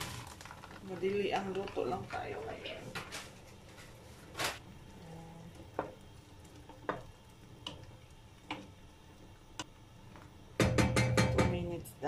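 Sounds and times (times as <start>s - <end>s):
pot boiling with hiss: 0.0s - 12.0s
wooden spoon knocking metal pot: 10.6s - 11.7s.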